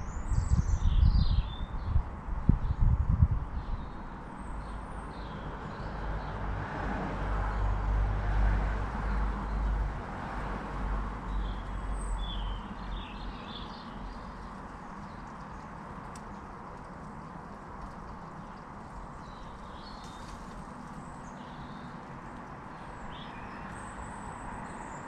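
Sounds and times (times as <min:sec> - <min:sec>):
distant vehicle rumble: 0:02.1 - 0:25.0.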